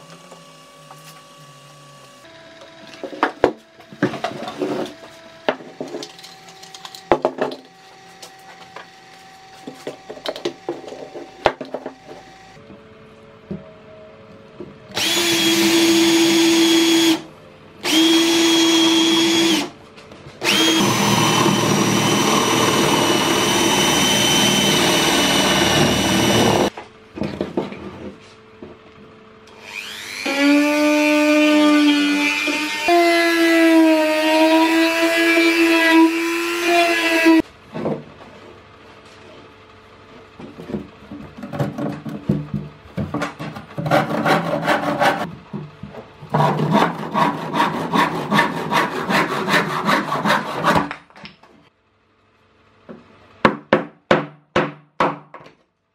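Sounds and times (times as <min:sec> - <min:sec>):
rotary tool whine: 0:00.0 - 0:12.6, 0:20.4 - 0:26.7, 0:29.5 - 0:30.6
power drill boring into wood: 0:15.0 - 0:17.2, 0:17.8 - 0:19.7, 0:20.4 - 0:26.7.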